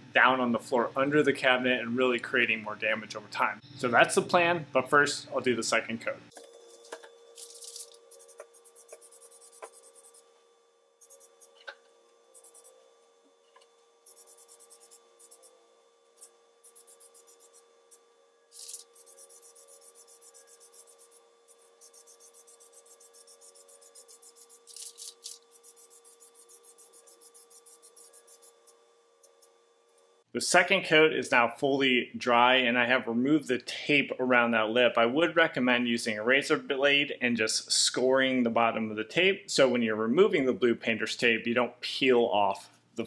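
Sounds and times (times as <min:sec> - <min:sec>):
aerosol can spraying: 0:07.4 - 0:10.2, 0:11.0 - 0:12.8, 0:14.0 - 0:15.5, 0:16.2 - 0:17.6, 0:18.5 - 0:29.4.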